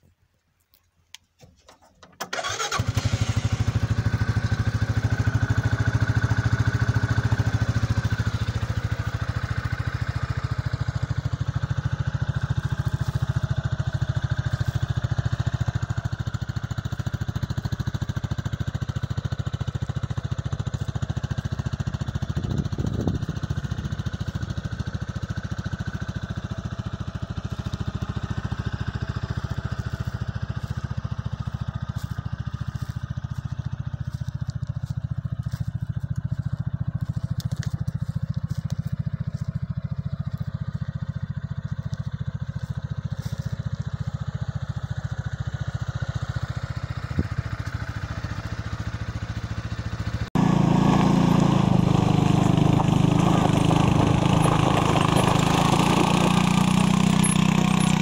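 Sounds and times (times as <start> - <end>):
engine starting and idling: 1.4 - 33.4, 45.4 - 58.0.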